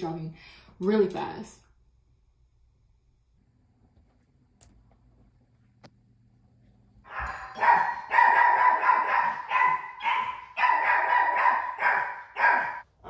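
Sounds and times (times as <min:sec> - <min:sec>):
dog barking: 0:07.1 - 0:12.9.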